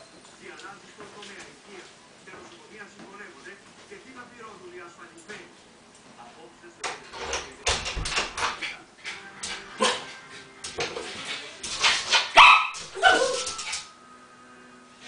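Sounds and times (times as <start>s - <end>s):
small dog barking and yelping: 12.3s - 13.8s
dog whimpering cries: 13.0s - 13.7s.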